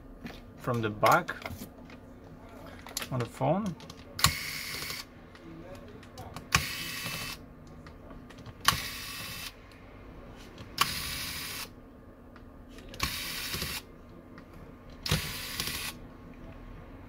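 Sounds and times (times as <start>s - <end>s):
electric screwdriver whirring: 13.0s - 13.8s, 15.1s - 16.0s.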